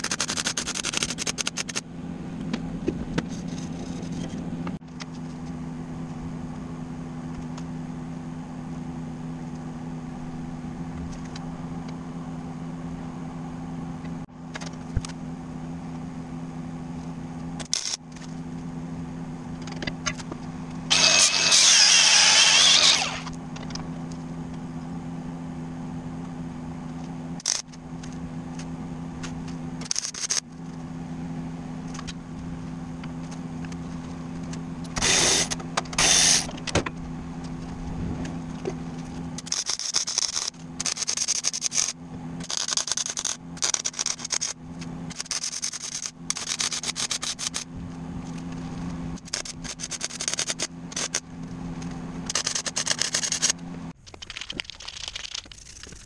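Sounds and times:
steady low hum: 0.0 - 56.0
welding arc crackling: 20.9 - 23.3, 39.4 - 47.6
angle grinder spinning down: 20.9 - 23.4.

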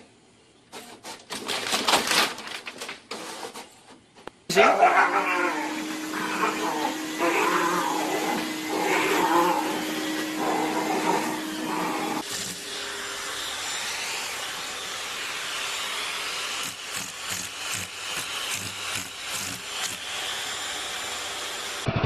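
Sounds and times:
upright vacuum cleaner humming: 4.6 - 21.9.

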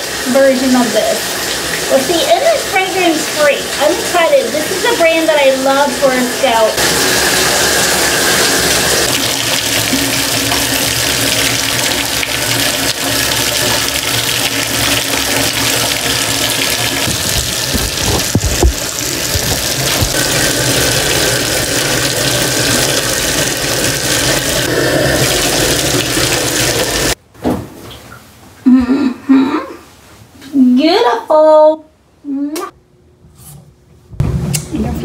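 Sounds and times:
tap running into bathtub: 6.8 - 28.2.

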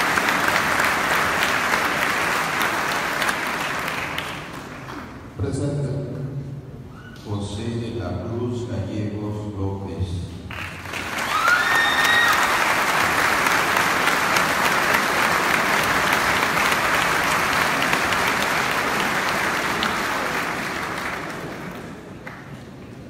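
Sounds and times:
congregation applauding: 0.0 - 5.3, 10.5 - 23.0.

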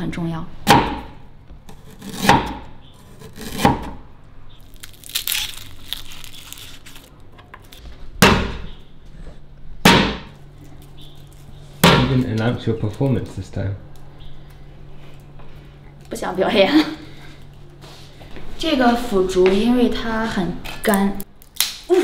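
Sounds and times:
garlic skin crackling: 4.6 - 7.8, 20.9 - 22.0.

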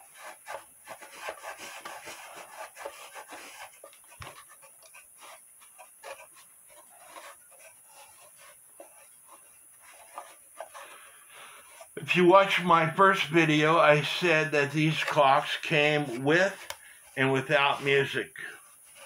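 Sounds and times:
cloth rubbing on wood: 0.0 - 19.0.

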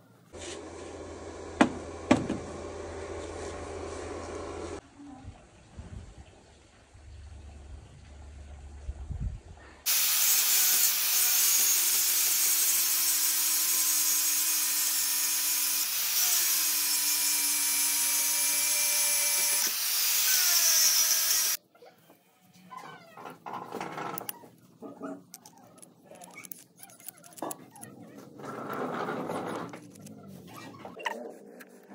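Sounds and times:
angle grinder cutting steel: 9.9 - 21.6.

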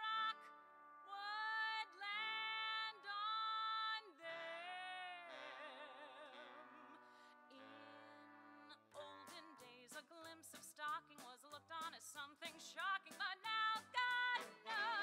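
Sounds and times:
woman singing: 0.0 - 0.5, 1.1 - 15.0
musical accompaniment: 12.5 - 15.0.

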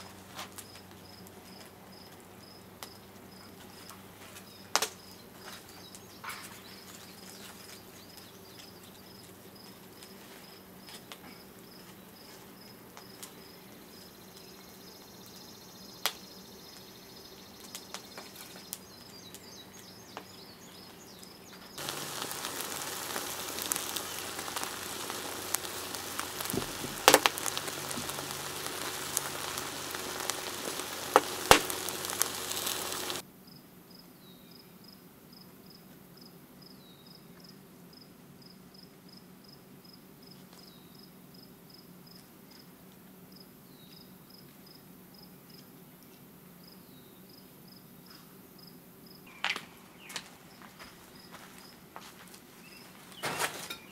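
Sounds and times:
crickets chirping: 0.0 - 42.2, 46.6 - 53.9
wood fire rushing and crackling: 17.6 - 33.2.

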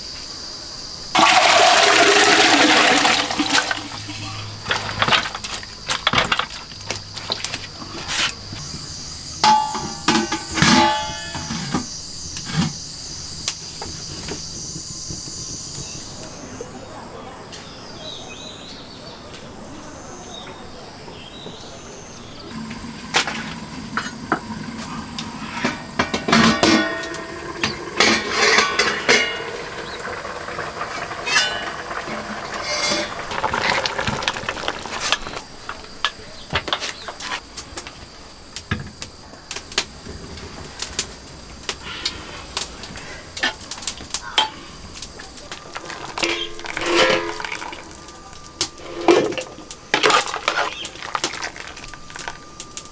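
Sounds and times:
low steady hiss: 0.0 - 52.9
metal pot and lid clanking: 1.2 - 6.5, 9.4 - 12.8, 25.5 - 37.0, 45.8 - 52.4.

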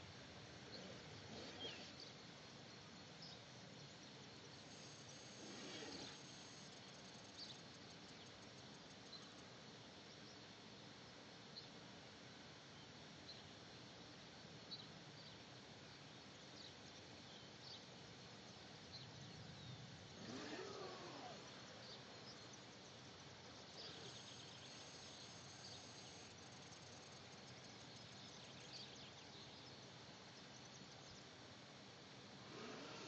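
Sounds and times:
faint passing whine: 20.1 - 21.9, 32.4 - 33.0.

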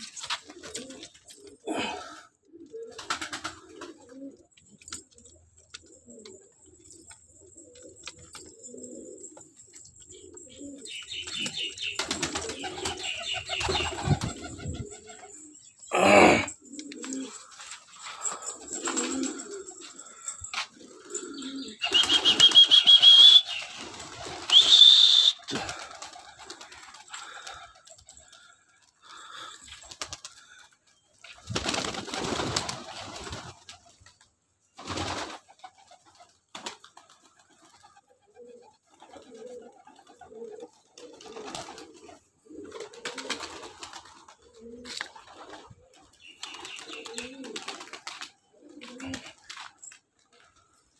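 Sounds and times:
pigeons cooing: 0.0 - 50.9
loud whistling bursts: 21.8 - 25.5.

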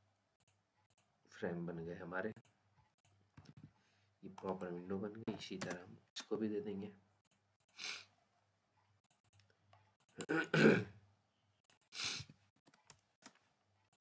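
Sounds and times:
man clearing his throat: 10.2 - 11.0.

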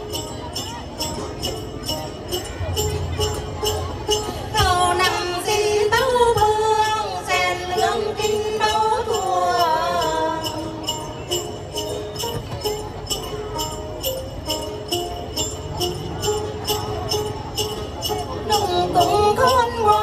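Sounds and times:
plucked lutes: 0.0 - 20.0
shaken small bells: 0.0 - 20.0
voices singing: 4.4 - 11.4.

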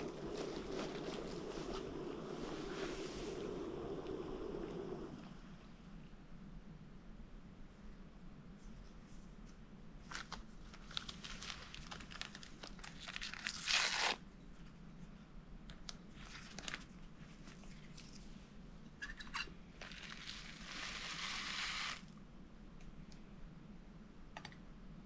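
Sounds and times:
rustling and crinkling: 0.0 - 3.5, 8.5 - 22.1.

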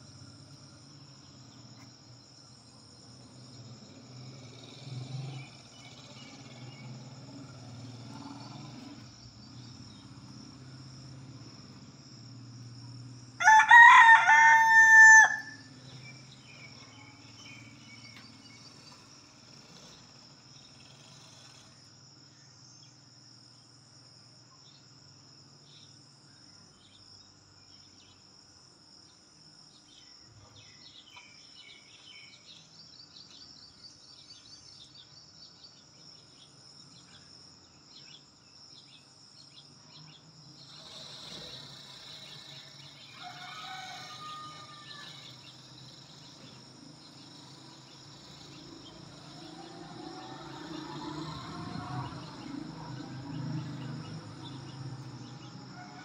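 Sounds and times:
rooster crowing: 13.4 - 15.8, 43.0 - 45.6, 55.7 - 56.0.

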